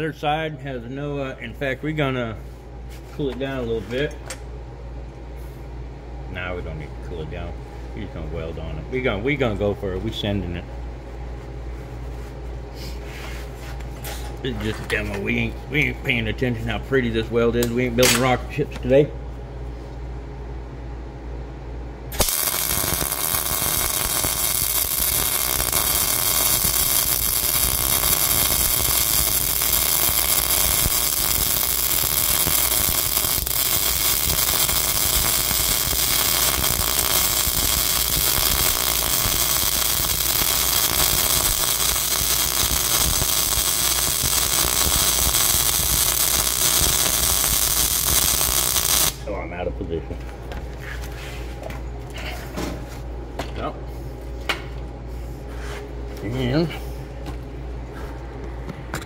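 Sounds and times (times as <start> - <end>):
welding arc crackling: 22.1 - 49.3.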